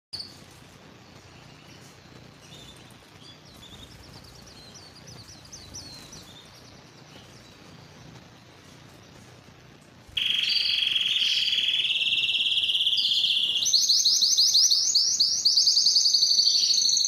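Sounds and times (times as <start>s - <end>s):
canary chirping: 0.1s - 17.0s
background hiss: 0.2s - 17.0s.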